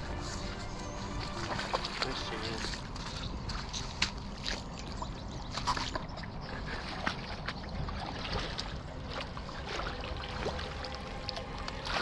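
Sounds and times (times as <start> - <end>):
fish splashing and thrashing: 0.0 - 12.0.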